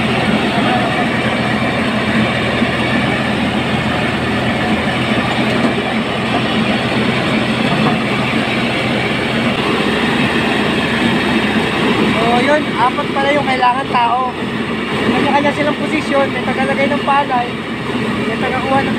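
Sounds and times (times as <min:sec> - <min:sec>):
rice mill mechanical din: 0:00.0 - 0:15.1
engine hum: 0:00.0 - 0:18.9.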